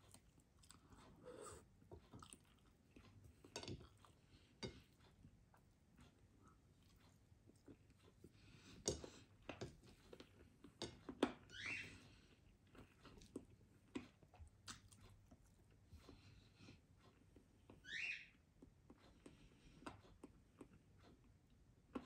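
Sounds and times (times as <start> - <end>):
chewing and biting food: 0.0 - 11.2, 12.5 - 16.3.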